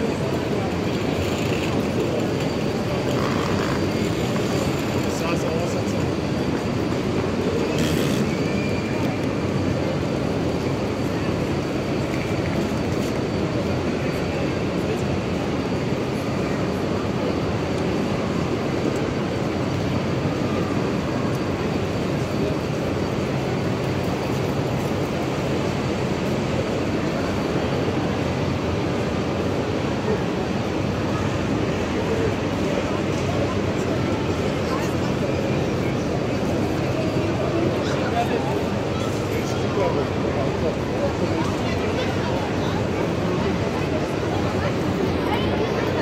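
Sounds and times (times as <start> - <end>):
indistinct crowd voices: 0.0 - 46.0
rumble of trains: 0.0 - 46.0.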